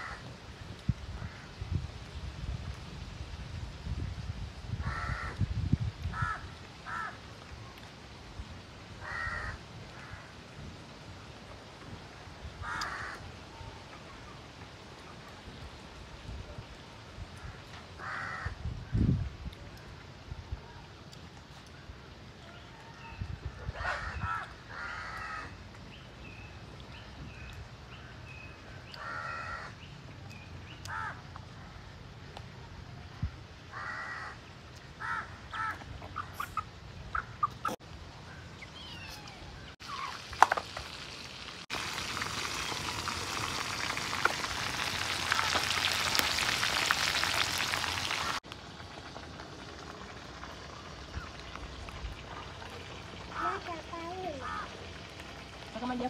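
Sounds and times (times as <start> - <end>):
crow-like caws: 0.0 - 0.3, 4.8 - 5.4, 6.1 - 7.2, 9.0 - 10.4, 12.6 - 13.2, 17.4 - 18.6, 23.7 - 25.6, 29.0 - 29.8, 30.9 - 31.2, 33.7 - 34.4, 35.0 - 35.8, 54.4 - 54.7.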